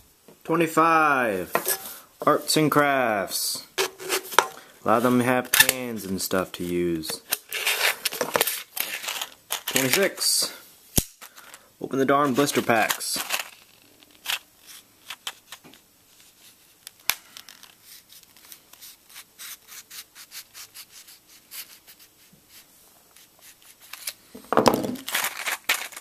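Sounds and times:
knife scraping blister pack: 7.2s - 10.1s, 12.3s - 15.6s, 16.2s - 22.6s, 23.2s - 24.2s, 25.0s - 26.0s
blister pack crinkling: 7.4s - 11.6s, 12.2s - 19.1s, 24.9s - 26.0s.

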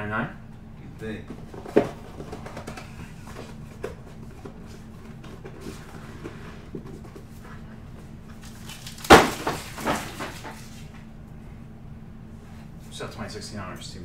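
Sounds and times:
cardboard rustling: 1.3s - 10.8s.

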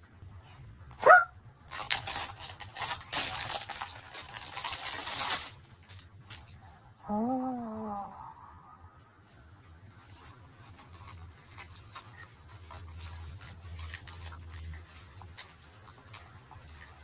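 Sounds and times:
crinkling sheet being bitten: 1.0s - 6.6s, 9.6s - 17.0s.

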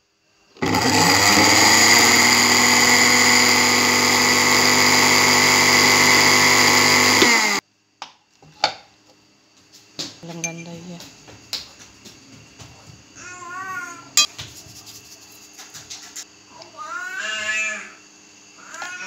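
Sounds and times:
mixer grinder motor whining: 0.6s - 7.6s.

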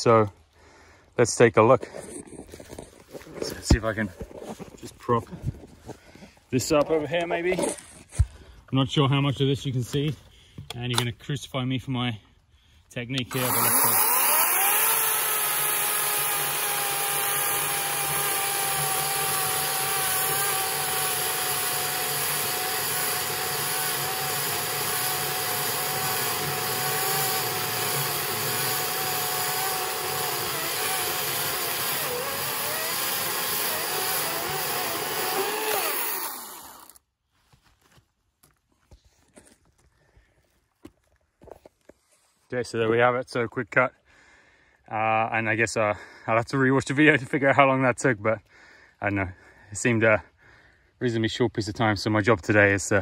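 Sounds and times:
electric chainsaw cutting wood: 13.3s - 37.0s.

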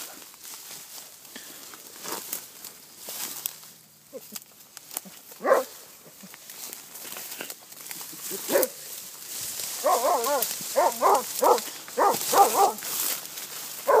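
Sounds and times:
dog yelping: 5.4s - 5.8s, 9.8s - 12.8s.

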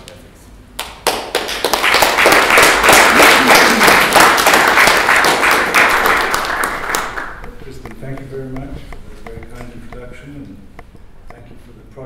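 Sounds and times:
audience applauding: 0.8s - 7.6s.

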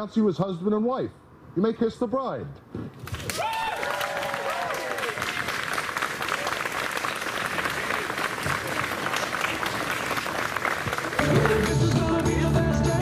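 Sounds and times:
crowd applauding: 3.1s - 12.4s
cheers and whoops: 3.2s - 5.6s.

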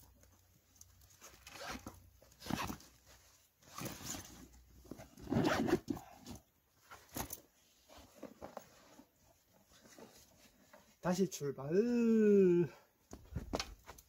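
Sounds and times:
nylon bag rustling: 0.8s - 11.0s
zipper pulls: 1.2s - 2.9s, 3.6s - 6.4s.

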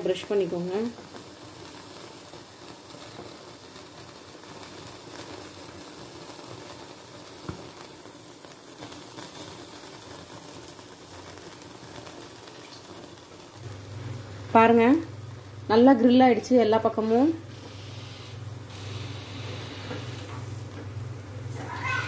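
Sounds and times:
skewers hissing on grill: 17.0s - 20.8s, 21.4s - 22.0s.

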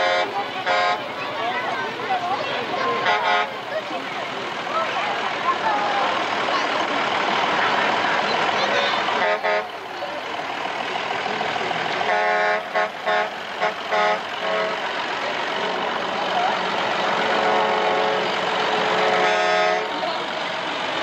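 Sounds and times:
vehicle horn honking: 0.0s - 1.2s, 2.8s - 3.6s, 8.7s - 9.8s, 12.0s - 14.9s, 17.2s - 20.2s
tractor engine running: 0.0s - 21.0s.

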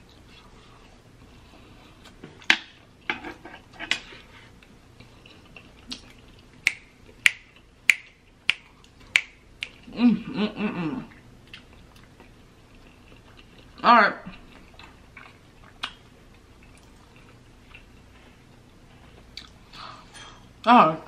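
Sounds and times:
fingers snapping: 6.6s - 9.8s
person humming: 9.9s - 11.1s.

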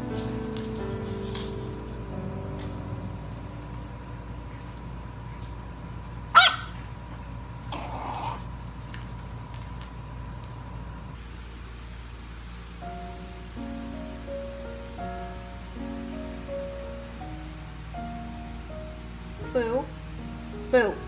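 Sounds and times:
puppy barking: 6.3s - 6.9s.

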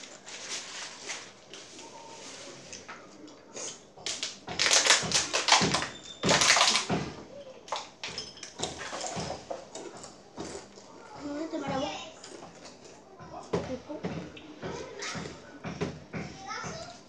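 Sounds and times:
tortilla chips crunching: 4.0s - 6.9s
chips rattling in bowls: 4.1s - 6.9s.

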